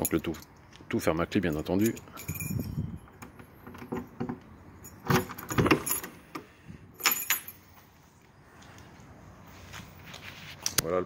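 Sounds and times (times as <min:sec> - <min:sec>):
keys jangling on a ring: 0:01.4 - 0:03.2, 0:04.8 - 0:06.2, 0:07.0 - 0:07.7.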